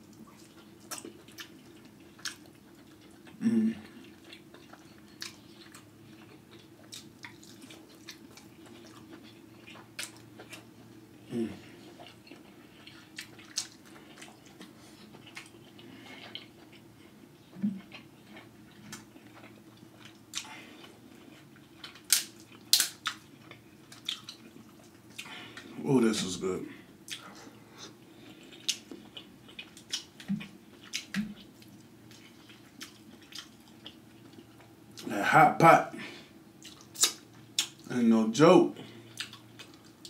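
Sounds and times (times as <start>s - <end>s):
chewing and mouth sounds: 0.0s - 25.7s, 27.0s - 35.1s, 36.6s - 37.9s, 38.8s - 40.0s
crab shell cracking: 22.0s - 23.2s.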